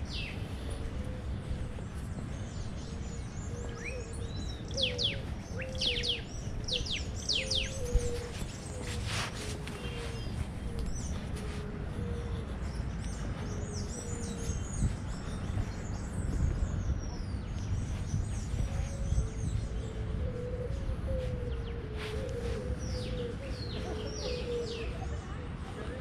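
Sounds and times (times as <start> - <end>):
small birds chirping: 0.0 - 26.0
lower repeated bird call: 2.8 - 15.0.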